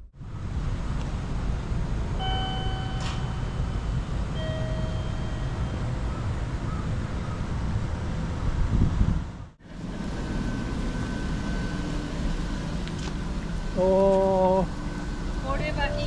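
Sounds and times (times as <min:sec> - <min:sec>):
low outdoor rumble: 0:00.0 - 0:16.0
long even tones: 0:09.7 - 0:16.0.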